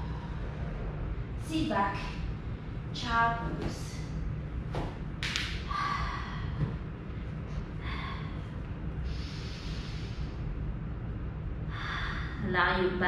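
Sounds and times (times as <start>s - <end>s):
woman breathing: 0.0s - 1.2s, 5.7s - 10.7s, 11.6s - 12.5s
steady low hum: 0.0s - 13.0s.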